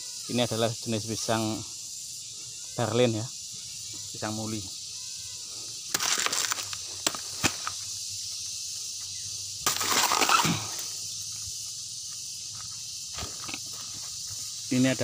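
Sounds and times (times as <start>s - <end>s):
high insect buzz: 0.0s - 15.0s
rustling dry leaf litter: 6.0s - 7.7s.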